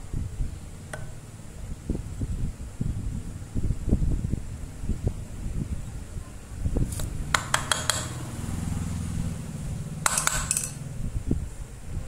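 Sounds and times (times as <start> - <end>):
metal drill parts clinking: 10.1 - 10.8.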